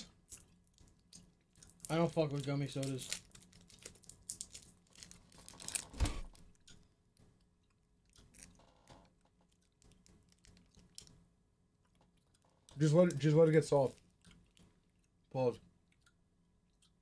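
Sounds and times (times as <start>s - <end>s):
faint chewing of candy: 0.0s - 5.7s, 6.4s - 17.0s
plastic candy wrapper crinkling: 0.3s - 6.3s.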